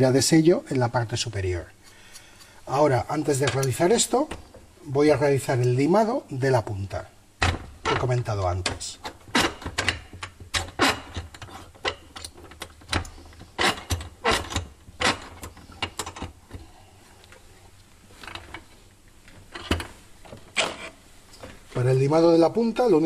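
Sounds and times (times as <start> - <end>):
metal rod clicking and scraping in vise: 9.0 - 16.4.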